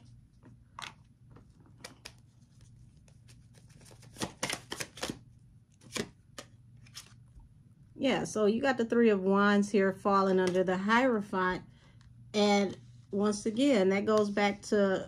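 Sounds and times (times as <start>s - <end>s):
cards flicking and snapping: 1.7s - 2.3s, 3.0s - 7.2s.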